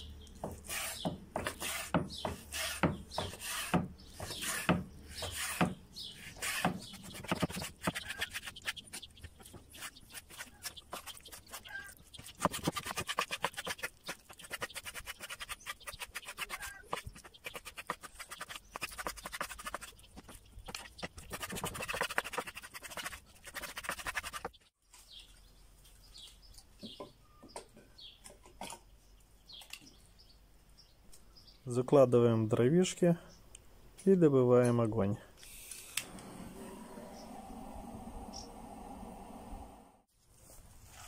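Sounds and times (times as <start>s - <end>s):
birds chirping: 0.0s - 22.4s, 23.0s - 40.0s
knife chopping on wooden board: 0.4s - 5.8s.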